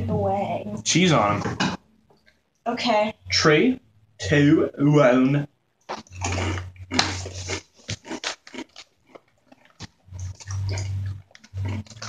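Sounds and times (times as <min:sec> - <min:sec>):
crunchy snacks being chewed: 0:05.9 - 0:12.0.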